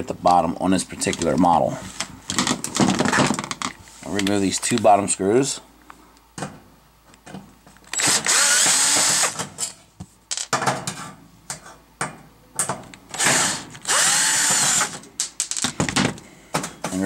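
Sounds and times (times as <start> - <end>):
cordless drill spinning: 7.9 - 9.4, 13.2 - 15.0.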